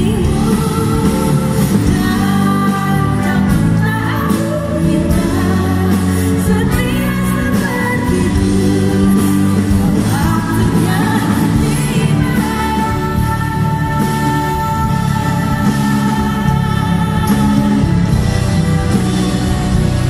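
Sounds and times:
live band playing: 0.0 - 20.0
woman singing into a microphone: 0.0 - 20.0.

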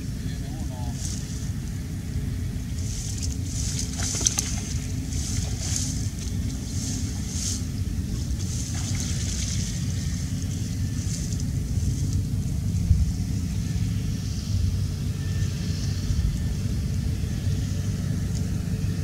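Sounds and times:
wind buffeting the microphone: 0.0 - 15.2.

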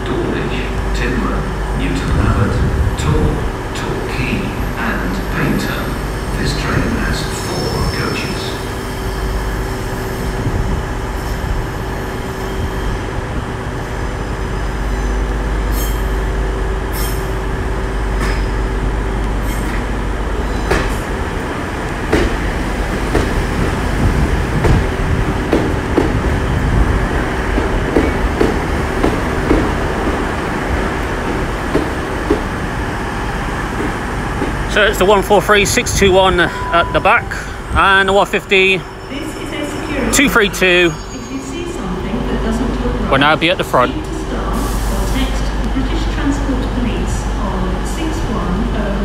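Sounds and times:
diesel train rumble and whine: 0.0 - 49.0
train wheels clicking over rail joints: 20.6 - 32.8.

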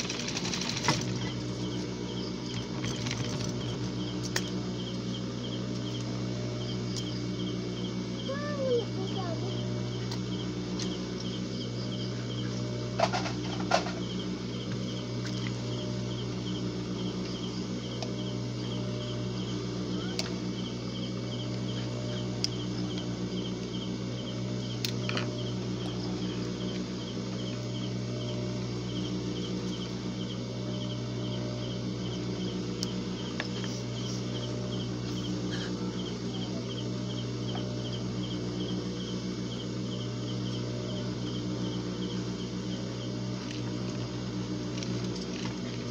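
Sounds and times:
low electrical hum: 0.0 - 45.9
cricket chirping: 0.2 - 44.6.

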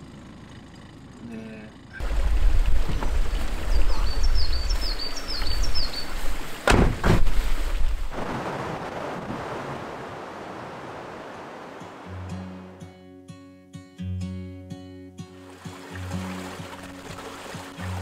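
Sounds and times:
wind buffeting microphone: 2.0 - 11.8
wind through tree leaves: 2.0 - 12.8, 15.3 - 18.0
bird chirping: 3.0 - 6.4
sharp knocks: 6.6 - 7.4.

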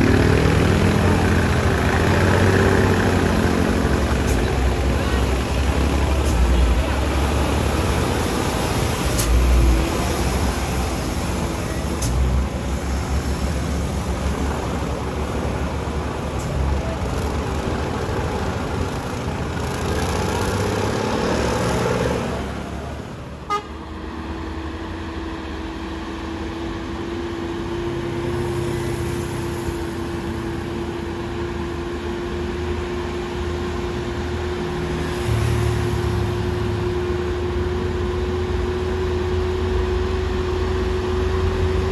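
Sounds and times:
heavy engines under load: 0.0 - 41.9
truck engine drone: 0.0 - 41.9
vehicle horn: 23.4 - 23.8.

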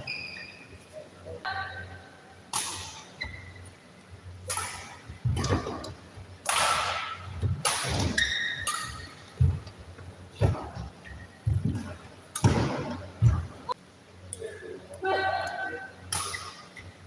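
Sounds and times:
rackets hitting shuttlecock: 2.5 - 3.4, 4.4 - 9.6, 11.6 - 13.4, 16.1 - 16.9.

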